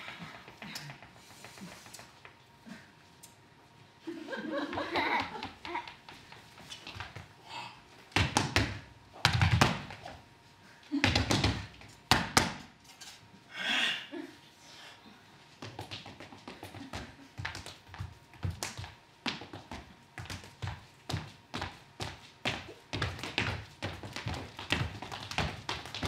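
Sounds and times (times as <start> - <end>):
tap shoes stamping on floor: 8.1 - 10.0, 11.0 - 12.6, 15.6 - 26.0.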